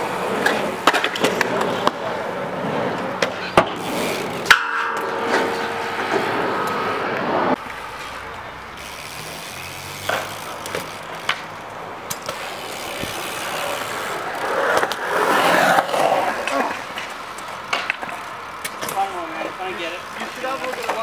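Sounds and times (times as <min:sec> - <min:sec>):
bike tyres rolling on concrete: 0:00.0 - 0:21.0.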